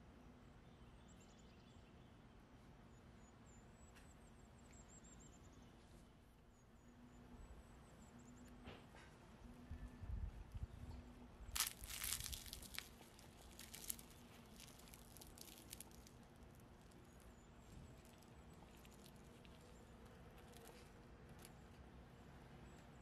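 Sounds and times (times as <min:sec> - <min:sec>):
fried crust crackling: 0:11.5 - 0:21.6.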